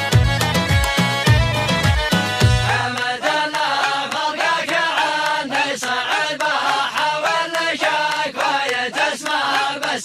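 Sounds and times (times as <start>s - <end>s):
percussive beat: 0.0s - 5.4s
man chanting layered vocals: 2.3s - 10.0s.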